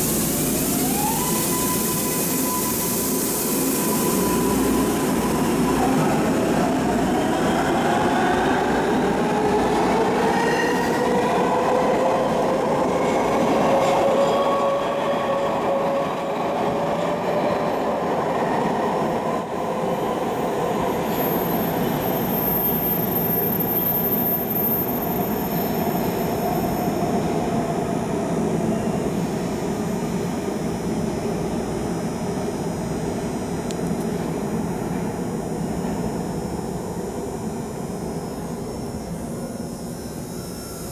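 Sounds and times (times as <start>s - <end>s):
subway train motor whine: 0.0s - 40.9s
high wheel squeal: 1.2s - 6.0s.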